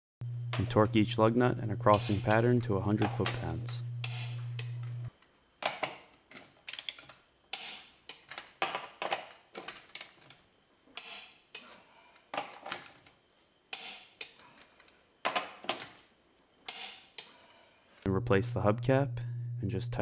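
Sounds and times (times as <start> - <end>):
torque wrench sharp ringing click: 1.9 - 2.5.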